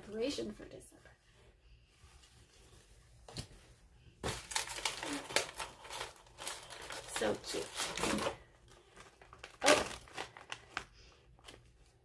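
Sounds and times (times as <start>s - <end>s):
packaging crinkling and rustling: 4.2s - 12.0s.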